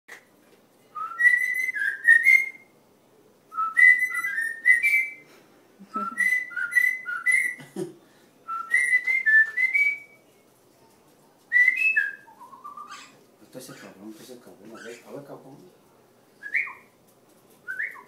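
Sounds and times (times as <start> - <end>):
cockatiel whistling: 1.0 - 2.7, 3.5 - 5.2, 5.9 - 7.6, 8.5 - 10.2, 11.5 - 13.8, 16.4 - 16.9, 17.6 - 18.0.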